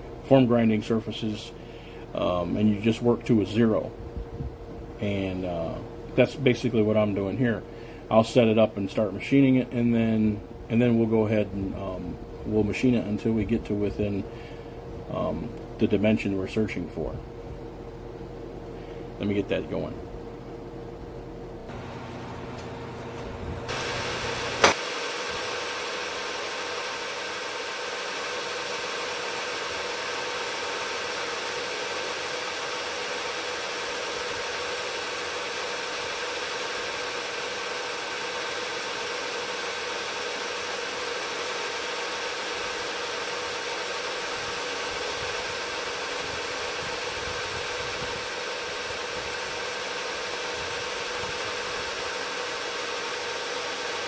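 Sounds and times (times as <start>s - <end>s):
milling machine humming: 20.0s - 54.0s.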